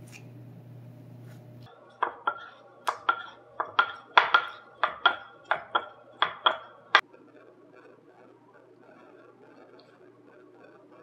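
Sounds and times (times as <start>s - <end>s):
wooden rolling pin clacking: 2.0s - 7.0s.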